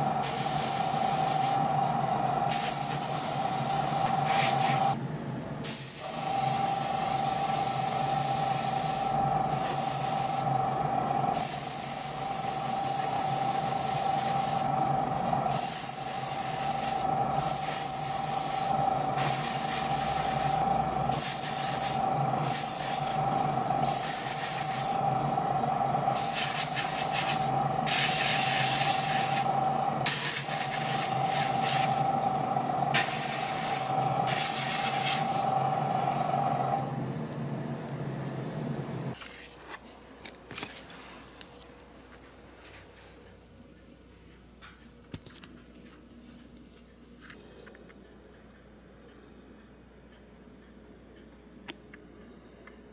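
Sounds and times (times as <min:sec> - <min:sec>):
steady machine hum: 0:00.0 - 0:39.2
airbrush spraying hiss: 0:00.2 - 0:01.6, 0:02.5 - 0:05.0, 0:05.6 - 0:10.5, 0:11.3 - 0:14.7, 0:15.5 - 0:23.2, 0:23.8 - 0:25.0, 0:26.1 - 0:32.1, 0:32.9 - 0:35.6.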